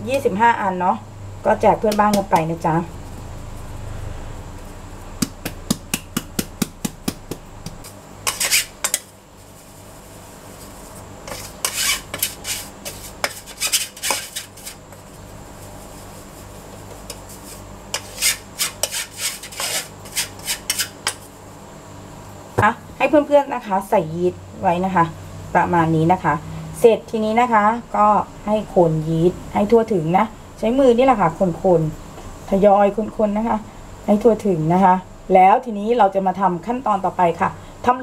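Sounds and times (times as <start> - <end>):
spoon scraping flour through mesh: 7.8 - 21.3.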